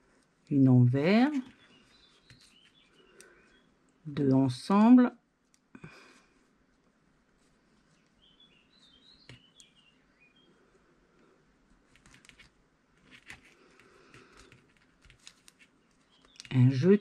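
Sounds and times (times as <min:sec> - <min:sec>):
knitting needles clicking: 0:11.9 - 0:16.7.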